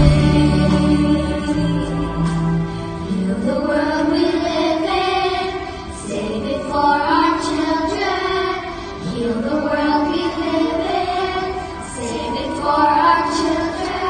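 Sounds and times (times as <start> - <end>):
woman and girls singing: 0.0 - 2.0, 3.1 - 14.0
orchestra accompanying: 0.0 - 4.5.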